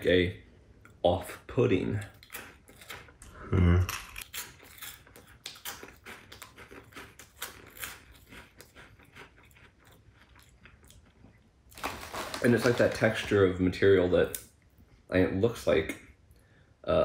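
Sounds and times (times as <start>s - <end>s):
crunchy chewing: 2.0s - 12.4s.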